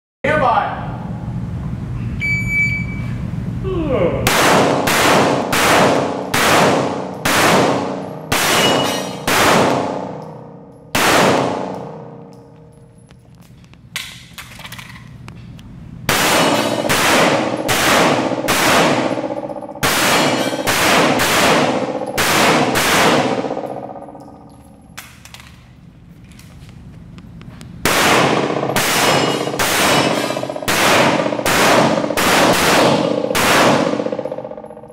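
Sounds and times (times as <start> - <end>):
pistol shots echoing indoors: 4.3 - 13.2, 16.1 - 25.6, 27.8 - 34.9.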